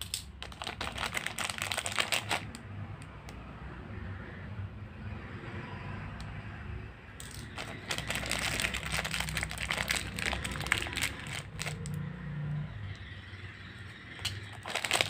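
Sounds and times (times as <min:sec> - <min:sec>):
plastic bag crinkling: 0:00.0 - 0:02.5, 0:07.2 - 0:11.9, 0:14.2 - 0:15.0.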